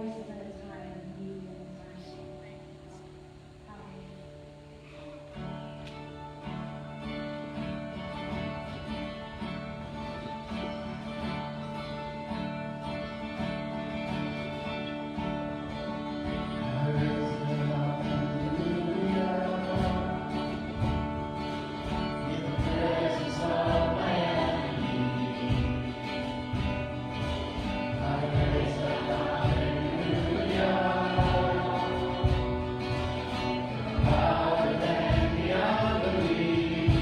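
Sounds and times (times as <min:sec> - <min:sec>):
acoustic guitar strumming: 0:00.0 - 0:37.0
voices singing: 0:14.1 - 0:37.0.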